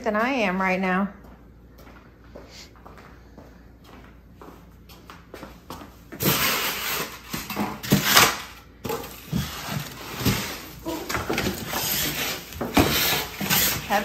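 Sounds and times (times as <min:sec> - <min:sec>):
knocks and scuffs: 0:01.2 - 0:06.2.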